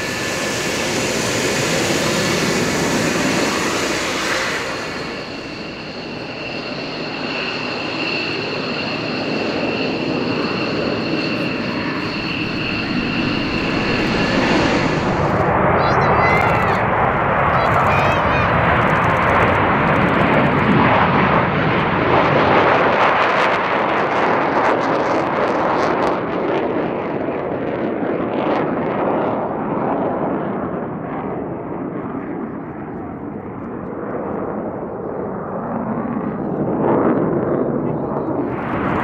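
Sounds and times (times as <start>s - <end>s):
jet engine crackle: 0.0s - 21.0s
jet engines roaring: 0.0s - 39.0s.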